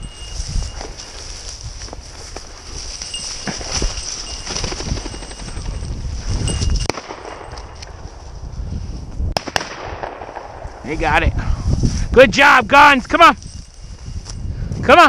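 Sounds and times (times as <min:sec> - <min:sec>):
brush rustling: 0:00.0 - 0:09.2, 0:13.4 - 0:14.5
footsteps: 0:00.0 - 0:09.2, 0:13.1 - 0:14.5
shotgun shots: 0:06.8 - 0:07.8, 0:09.4 - 0:10.8.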